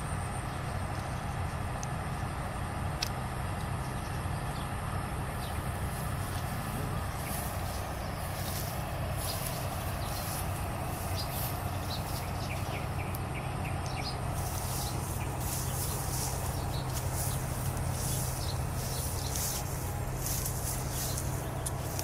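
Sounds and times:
steady low hum: 0.0 - 22.0
footsteps through tall grass: 5.3 - 22.0.

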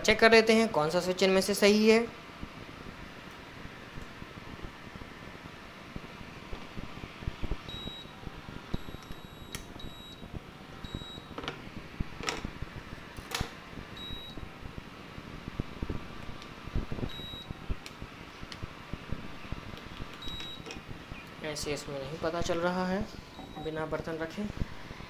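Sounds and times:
steady background hum: 0.0 - 25.0
short high-pitched beeps: 7.6 - 8.2, 8.8 - 11.3, 14.0 - 14.4, 17.1 - 17.5, 20.2 - 20.7, 23.4 - 23.8.

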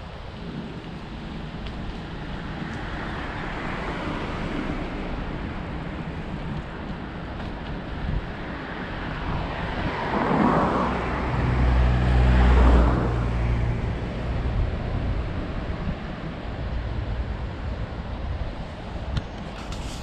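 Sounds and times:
vehicle passing by: 8.6 - 17.6.

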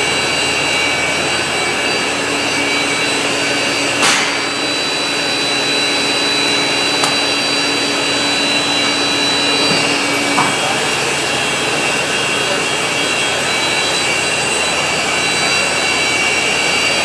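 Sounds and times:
shear machine whining: 0.0 - 17.0
sharp clack: 4.0 - 4.6.

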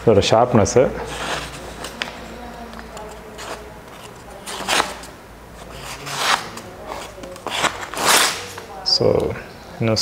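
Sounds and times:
knife slicing through paper: 5.6 - 8.6.

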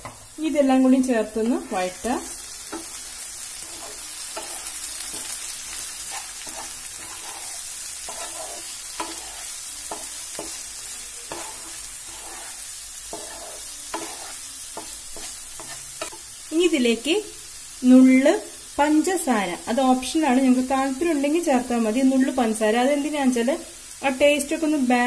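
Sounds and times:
vegetables sizzling in oil: 0.0 - 25.0
spatula scraping and tapping pan: 1.4 - 16.3.

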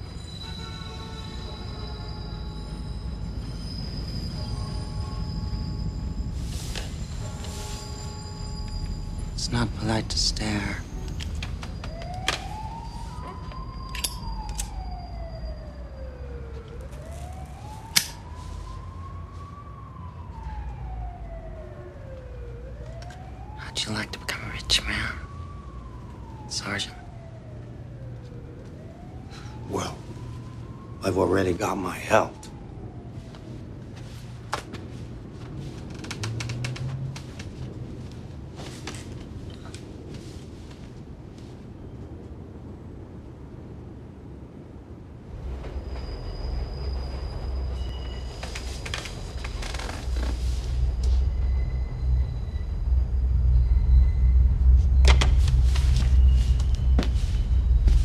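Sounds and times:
siren wailing: 0.0 - 40.4, 45.3 - 58.0
low steady rumble: 49.2 - 58.0.

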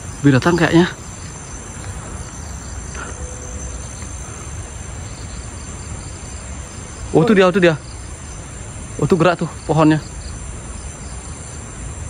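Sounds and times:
crickets and insects chirring: 0.0 - 12.0.

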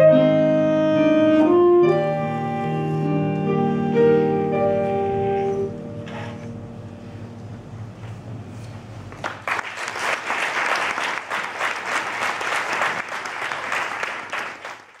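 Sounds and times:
audience applauding: 9.2 - 15.0.

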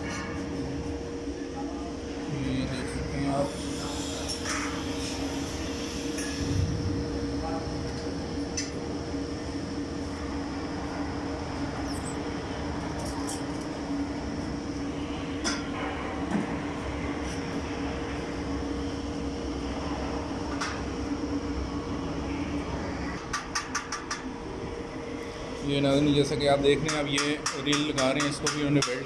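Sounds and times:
welding equipment humming: 2.3 - 14.8.

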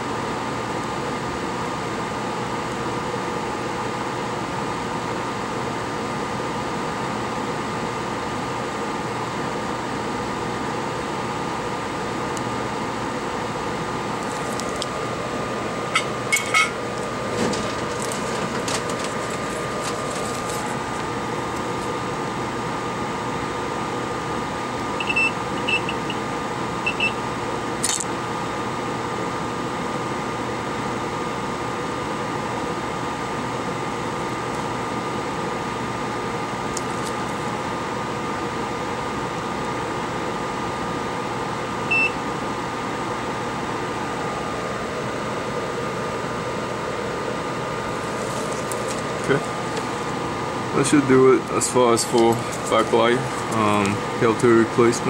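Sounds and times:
bench equipment fan hum: 0.0 - 55.0
short high beeps: 25.0 - 26.2.

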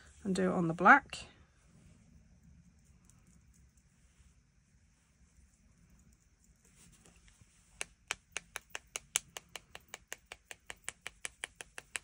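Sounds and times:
brushes tapping together: 7.0 - 12.0.

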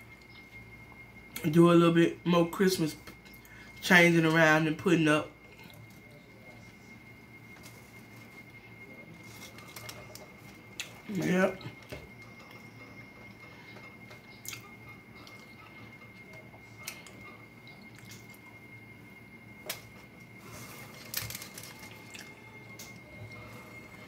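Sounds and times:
person chewing food: 13.7 - 18.5, 20.4 - 24.0.

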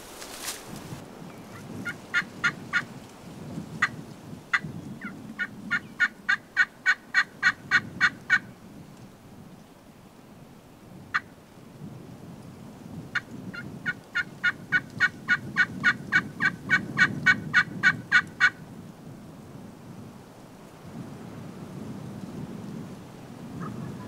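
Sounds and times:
wind rumbling: 0.0 - 24.0
turkey call hen yelps: 4.5 - 8.4, 13.5 - 18.6, 23.6 - 24.0.

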